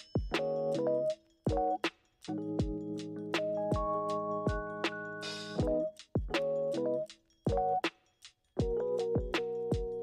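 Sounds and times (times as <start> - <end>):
drum beat: 0.0 - 0.5, 1.5 - 6.5, 7.5 - 10.0
keyboard chords: 0.0 - 7.8, 8.6 - 10.0.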